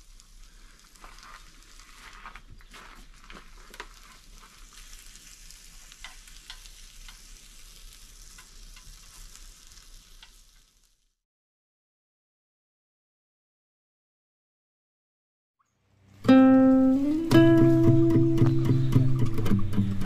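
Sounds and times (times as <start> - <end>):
food sizzling in a frying pan: 0.0 - 11.2, 16.3 - 18.4
utensil clicking in a pan: 5.9 - 10.7.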